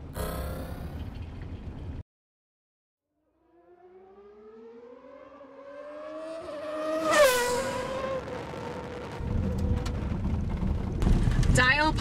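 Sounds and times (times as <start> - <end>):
car engine passing by: 3.4 - 10.2.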